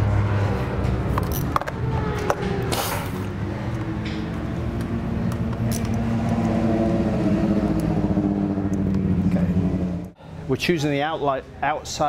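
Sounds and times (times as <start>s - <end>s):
vehicle engine running: 0.0s - 10.2s.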